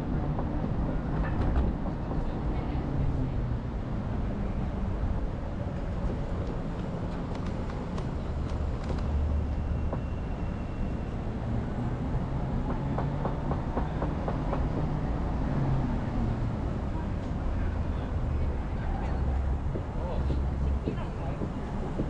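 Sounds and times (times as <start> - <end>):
moving vehicle rumble: 0.0 - 22.0
quick run of clicks: 6.4 - 9.2.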